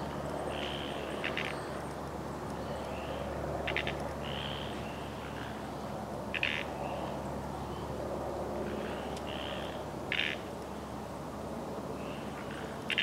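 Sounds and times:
small birds chirping: 0.0 - 8.0
rattling bird trills: 0.5 - 1.7, 3.6 - 4.7, 6.3 - 6.7, 9.3 - 10.4.

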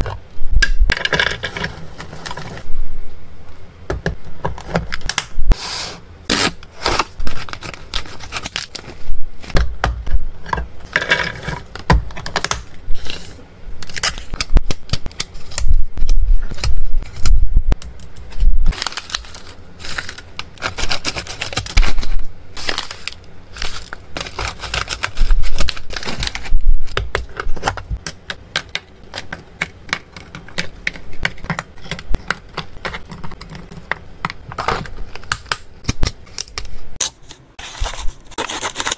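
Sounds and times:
pouch crinkling: 18.7 - 27.0.

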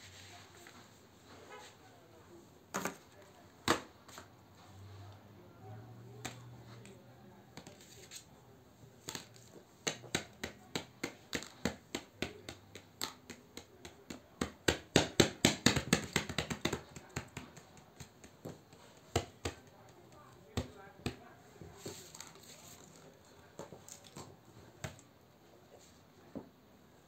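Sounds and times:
small hard items clicking and tapping: 9.0 - 21.2.

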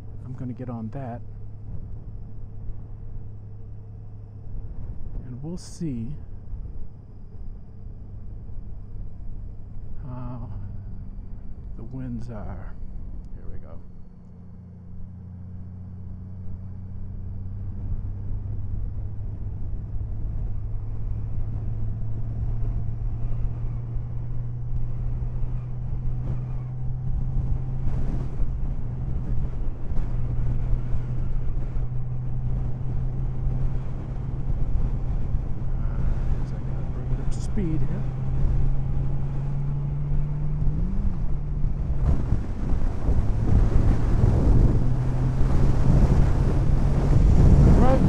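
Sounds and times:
motorcycle engine accelerating: 7.8 - 48.0
wind on microphone: 18.9 - 48.0.

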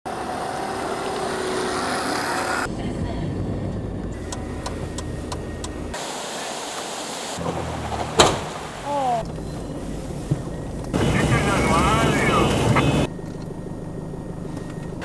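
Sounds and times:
engines running at low revs: 0.1 - 6.1, 7.3 - 15.0
rushing water: 6.0 - 10.3.

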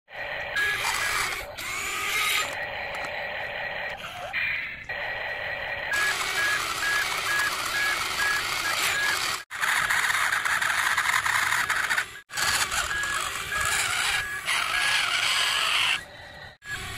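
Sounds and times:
toy excavator whirring: 0.1 - 16.9
short electronic beeps: 6.0 - 9.4, 12.3 - 14.5.

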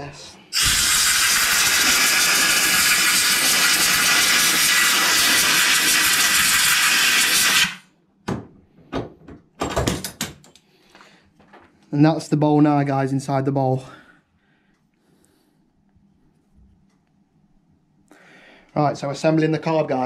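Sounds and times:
compressed air hissing: 0.5 - 7.8.

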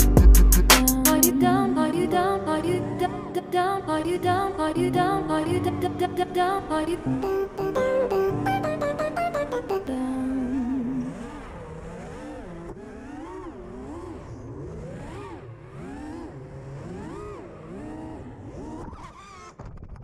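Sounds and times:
pop song: 0.0 - 11.3
quadcopter motors whining: 10.3 - 19.6.

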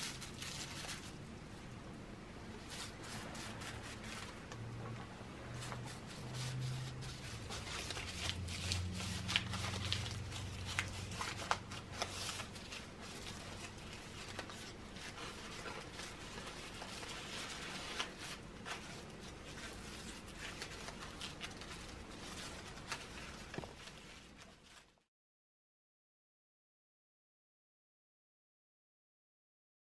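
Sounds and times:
crumpled paper rustling and crinkling: 0.0 - 1.3, 2.6 - 5.0, 5.6 - 25.1.

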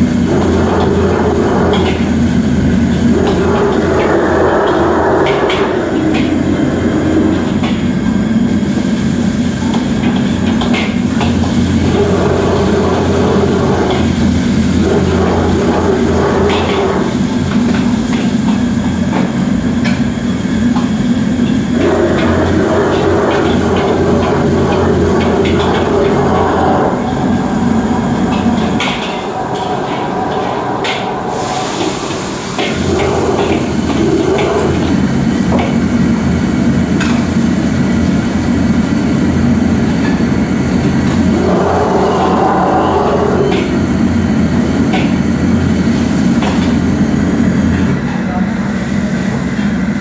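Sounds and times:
gas burner rushing: 0.0 - 50.0
extractor hood running: 20.6 - 46.1.

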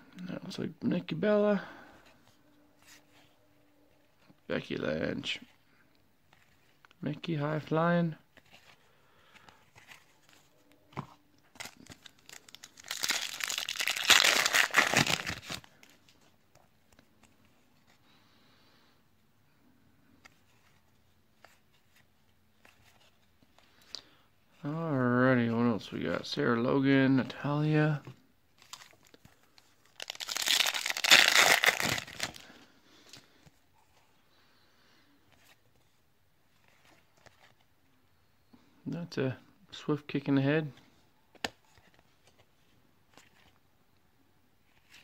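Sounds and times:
foil wrapper crinkling: 11.6 - 15.7, 29.9 - 32.4.

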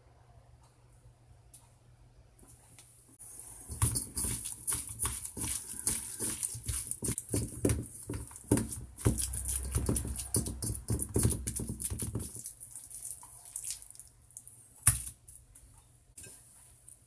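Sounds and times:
kneading filling in steel bowl: 3.2 - 15.3
hand tapping cutting board: 4.7 - 12.3.

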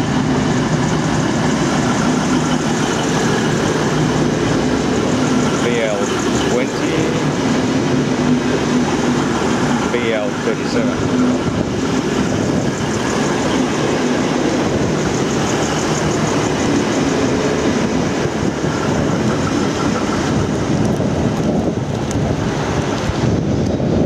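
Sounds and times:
diesel train engine running: 0.0 - 24.0.

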